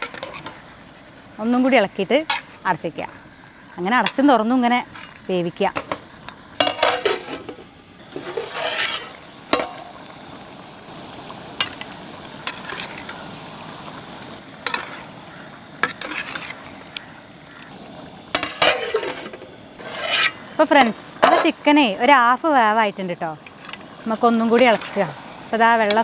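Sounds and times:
metal ladle scraping pot: 0.0s - 0.6s, 1.6s - 2.6s, 6.6s - 9.9s, 15.8s - 16.6s, 18.3s - 20.6s
curry sizzling: 0.0s - 26.0s.

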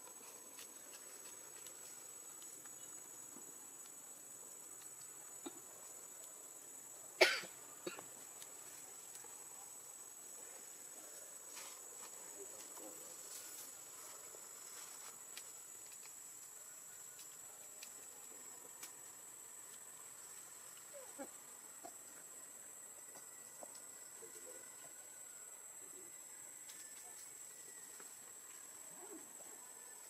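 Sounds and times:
insects droning: 0.0s - 30.0s
sharp cough-like sound: 7.2s - 8.0s.

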